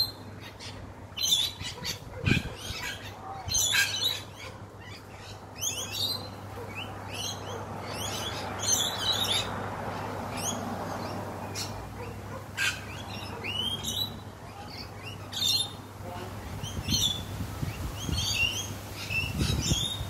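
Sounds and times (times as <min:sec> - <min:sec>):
lorikeets chirping and screeching: 0:00.0 - 0:20.0
wind on microphone: 0:01.6 - 0:03.7, 0:16.4 - 0:20.0.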